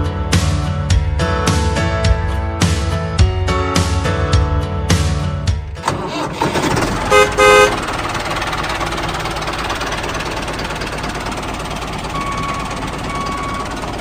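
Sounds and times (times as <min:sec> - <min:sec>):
engine rumble: 0:05.6 - 0:14.0
vehicle horn toots: 0:06.9 - 0:08.0.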